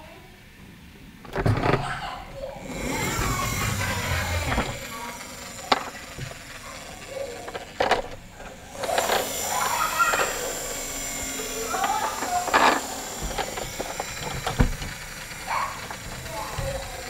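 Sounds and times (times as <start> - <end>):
plastic toy clicks and knocks: 3.0 - 17.0.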